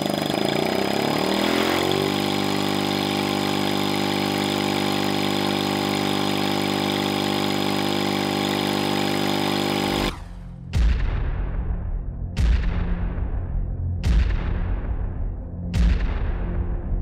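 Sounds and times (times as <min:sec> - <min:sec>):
rotary engine running: 0:00.0 - 0:10.5.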